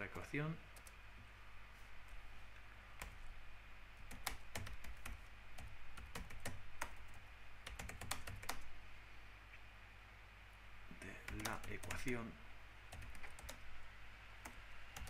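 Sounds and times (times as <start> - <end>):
computer keyboard typing: 4.0 - 8.7, 11.1 - 12.2, 12.9 - 13.7.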